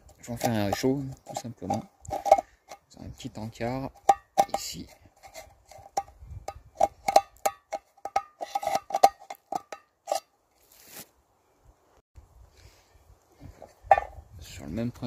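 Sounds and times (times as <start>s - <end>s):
knife striking a tin can: 3.9s - 4.8s, 5.9s - 10.2s
brief rustle: 10.6s - 11.2s.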